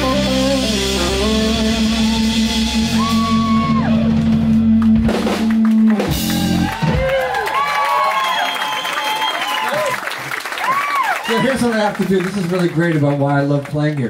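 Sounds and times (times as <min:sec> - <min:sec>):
guitar note sliding up: 0:00.0 - 0:06.8
electric guitar: 0:00.0 - 0:07.4
bass guitar: 0:00.0 - 0:07.6
drum hits: 0:02.1 - 0:07.2.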